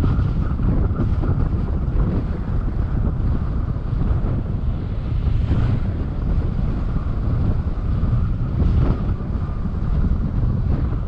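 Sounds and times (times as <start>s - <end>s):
car low rumble: 0.0s - 11.0s
wind buffeting microphone: 0.0s - 11.0s.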